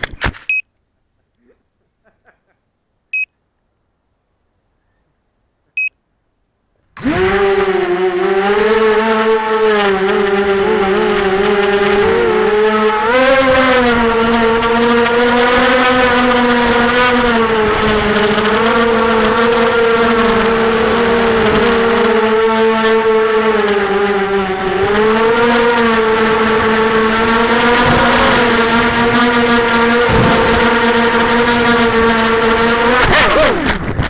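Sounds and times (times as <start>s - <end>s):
quadcopter motors whining: 7.0s - 34.0s.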